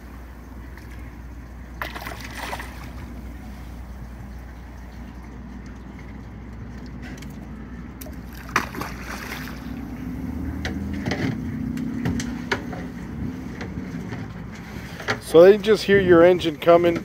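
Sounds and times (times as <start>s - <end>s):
boat engine idling: 0.0s - 17.0s
fish splashing: 0.4s - 11.6s.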